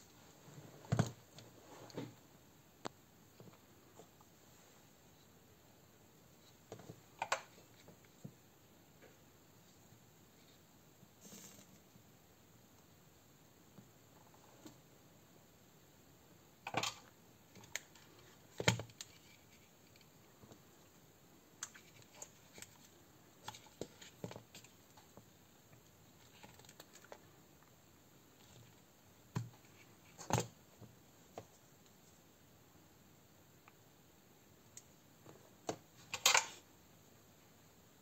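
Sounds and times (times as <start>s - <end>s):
plastic parts handled and set down: 35.6s - 36.6s.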